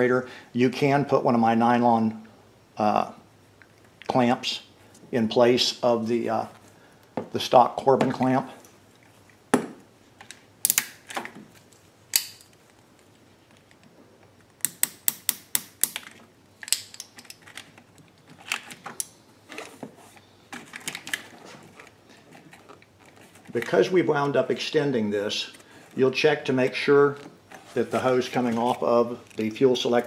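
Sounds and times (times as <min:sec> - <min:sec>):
pliers handling: 0:10.2 - 0:12.8, 0:14.6 - 0:23.9.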